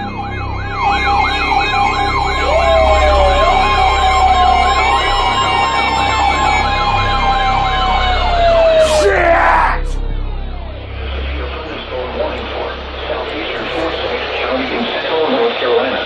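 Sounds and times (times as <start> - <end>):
warbling siren alarm: 0.0 - 8.9
steady warning tone: 0.0 - 15.4.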